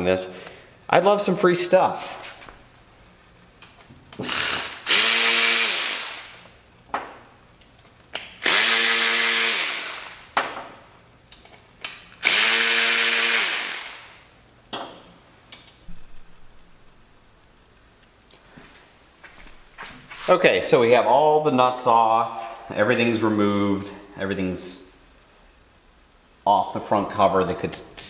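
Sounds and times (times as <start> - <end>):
cordless electric ratchet whirring: 4.2 - 6.4, 8.4 - 10.3, 12.2 - 14.2.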